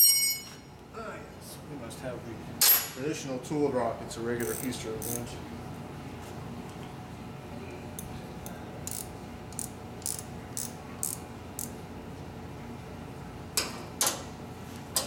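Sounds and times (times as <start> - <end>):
loud metal clinks: 0.0 - 0.6
metal tools clicking: 4.4 - 5.2, 8.4 - 11.7.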